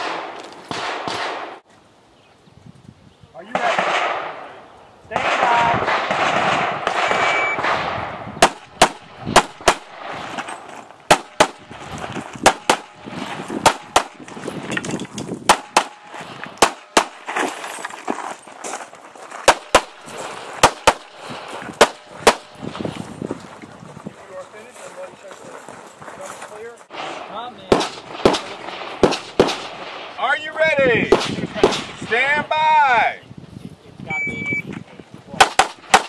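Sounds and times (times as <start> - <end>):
pistol shots: 0.0 - 1.6, 3.5 - 4.5, 5.2 - 10.4, 11.1 - 11.7, 12.4 - 14.2, 15.4 - 17.3, 19.5 - 22.6, 27.0 - 30.2, 31.1 - 32.0, 35.4 - 36.0
high beep: 7.2 - 7.6, 34.1 - 34.7.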